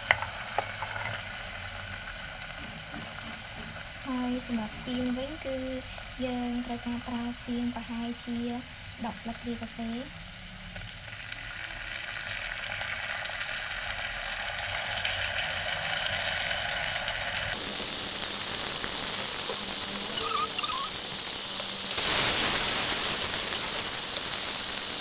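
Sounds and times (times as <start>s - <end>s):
oil sizzling in a saucepan: 0.0s - 25.0s.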